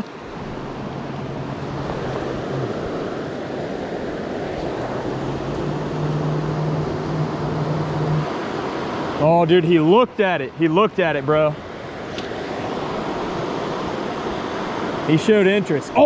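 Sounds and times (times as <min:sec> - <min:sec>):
river water rushing over rocks: 0:00.0 - 0:09.4.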